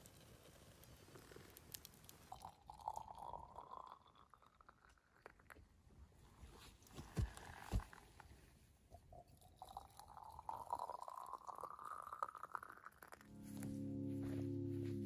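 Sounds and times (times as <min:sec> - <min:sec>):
liquid pouring into glass jar: 0:02.3 - 0:05.7, 0:08.9 - 0:13.2.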